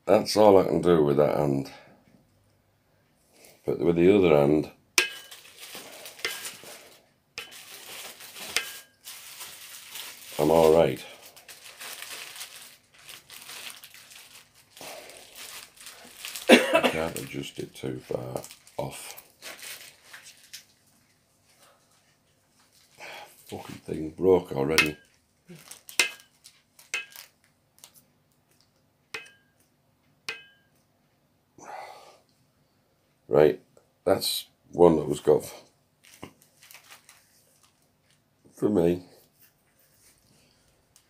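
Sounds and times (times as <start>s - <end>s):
soft rustle: 5.1s - 16.5s, 18.0s - 23.8s, 36.0s - 38.2s, 39.1s - 41.0s.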